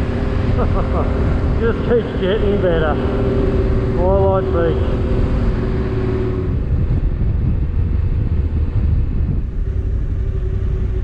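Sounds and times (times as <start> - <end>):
motorcycle engine: 0.0 - 11.0
road rumble: 0.0 - 11.0
wind noise on microphone: 2.7 - 11.0.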